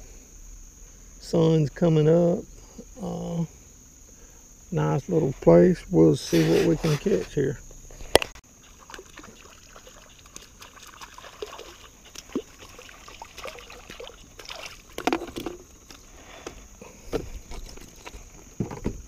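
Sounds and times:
fish splashing in water: 8.5 - 16.0.

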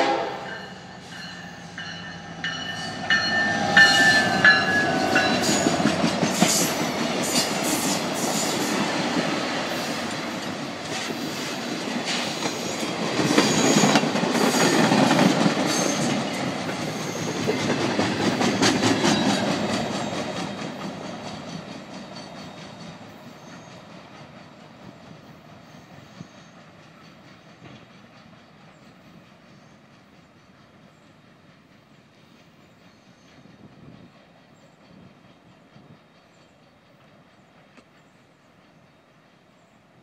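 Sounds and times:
train wheels clacking over rail joints: 2.6 - 39.0.

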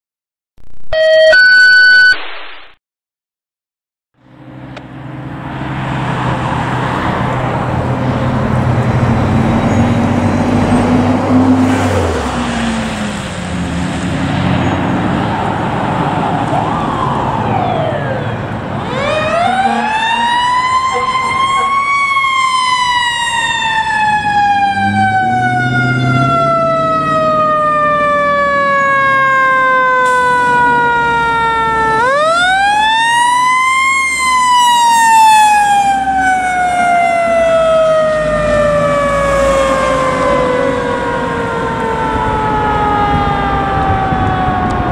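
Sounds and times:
fire engine siren winding: 1.0 - 2.2, 16.5 - 44.9
road noise: 4.2 - 44.9
fire truck engine running: 15.2 - 44.9.

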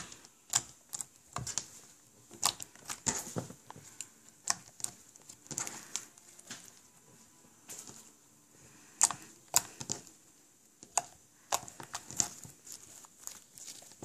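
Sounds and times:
slime clicking and popping: 2.4 - 3.2, 10.8 - 12.4.

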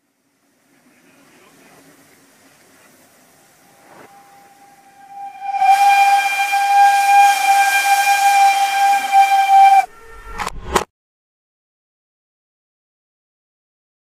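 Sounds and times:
hiss: 0.0 - 9.9
loud steady whistle: 3.6 - 10.5.

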